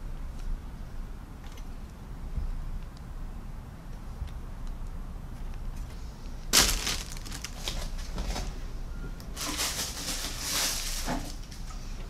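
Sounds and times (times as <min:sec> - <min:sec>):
plastic sprues being handled: 0:06.5 - 0:08.5, 0:09.4 - 0:11.5
plastic rustling: 0:06.5 - 0:08.6, 0:09.4 - 0:11.6.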